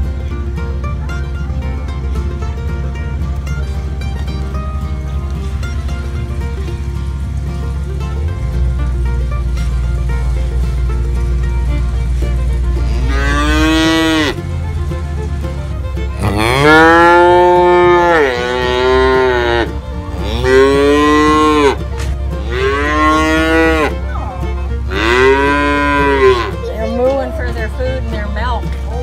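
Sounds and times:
cows mooing: 12.0 - 14.6, 16.2 - 28.1.

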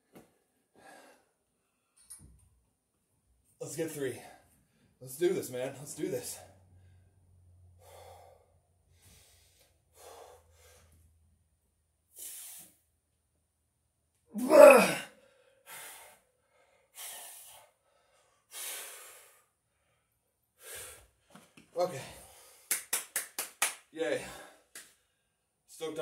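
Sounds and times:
man breathing hard: 0.7 - 1.4, 7.8 - 11.2, 15.0 - 21.3, 22.0 - 22.8
man grunting: 14.3 - 15.1.

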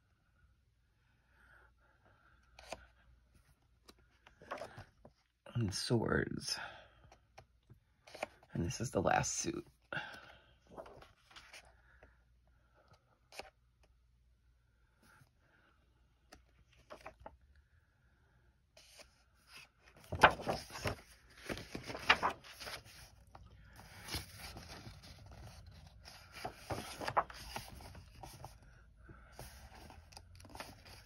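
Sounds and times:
paper pages rustling: 3.8 - 4.9, 10.7 - 11.7, 16.3 - 17.3, 18.8 - 28.7, 29.3 - 31.0.

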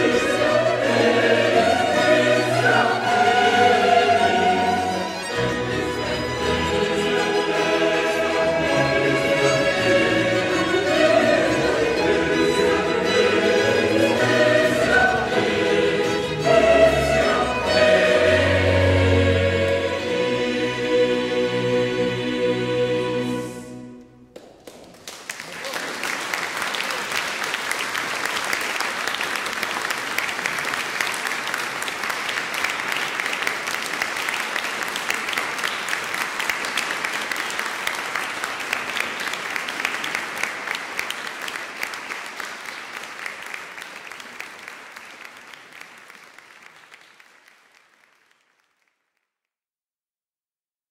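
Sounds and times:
audience applauding: 24.4 - 49.2.

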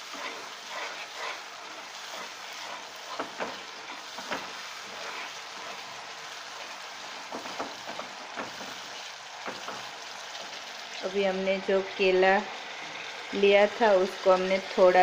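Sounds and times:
wooden spatula scraping pan: 0.0 - 9.9
paste sizzling in oil: 0.0 - 15.0.

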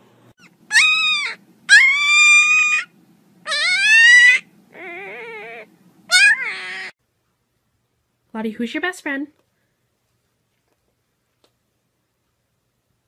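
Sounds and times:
animal high-pitched cries: 0.4 - 7.0.

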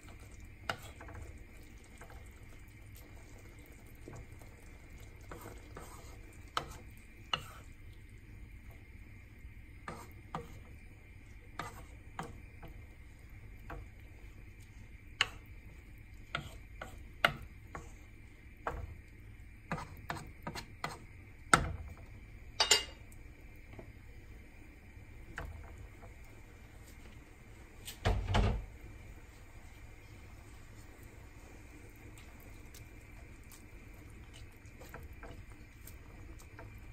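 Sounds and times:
wooden spatula scraping wok: 0.7 - 2.2, 5.1 - 7.8, 9.8 - 10.8, 11.4 - 12.7, 16.2 - 19.0.

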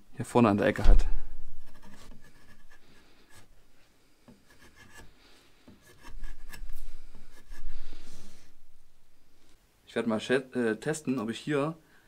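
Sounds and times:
blade scraping wooden board: 1.6 - 3.5, 4.3 - 5.1, 5.7 - 8.6.

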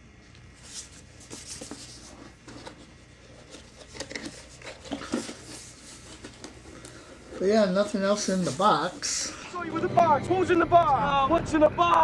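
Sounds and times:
cardboard box rustling: 0.8 - 9.1.

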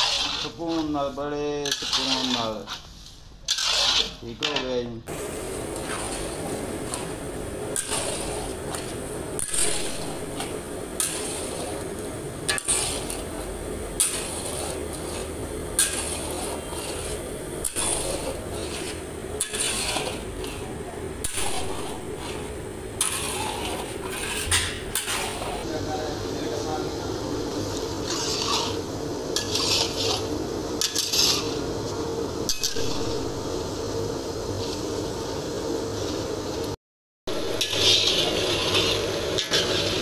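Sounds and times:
metal spatula scraping pan: 0.0 - 4.6, 5.8 - 25.6, 28.0 - 31.6, 37.3 - 40.0
steady hum: 0.0 - 40.0.

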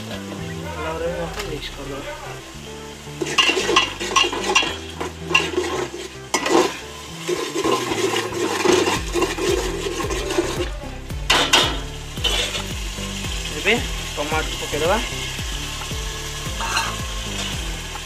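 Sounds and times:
food sizzling: 0.0 - 18.0
metal spatula scraping pot: 3.2 - 10.7, 11.3 - 12.7, 16.5 - 17.5.

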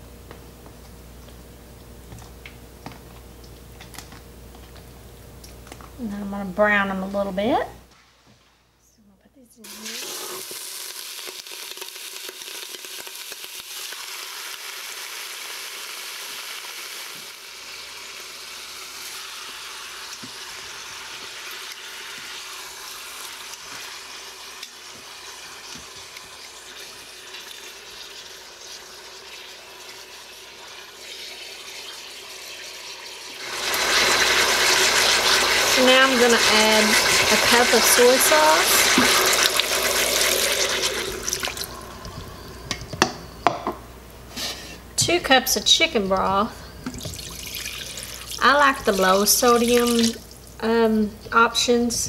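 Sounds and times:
meat sizzling in oil: 9.6 - 42.5.

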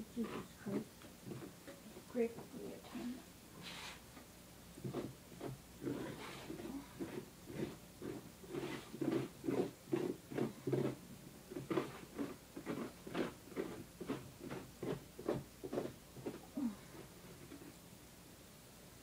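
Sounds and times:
knife rasping through pumpkin: 0.0 - 2.0, 4.8 - 17.7.

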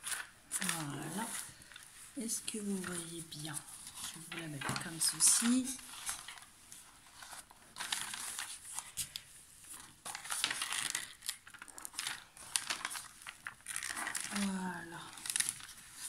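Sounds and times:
plastic sheet crinkling and rustling: 0.0 - 16.0.

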